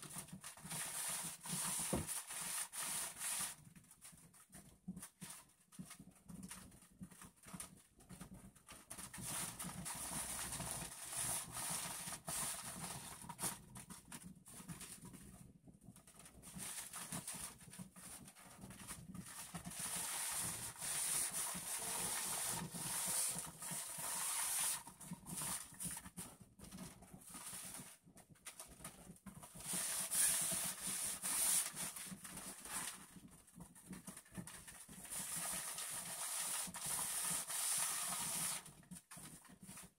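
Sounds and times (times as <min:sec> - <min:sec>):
garment steamer hissing: 0:19.7 - 0:24.8, 0:29.6 - 0:31.8, 0:35.2 - 0:38.6.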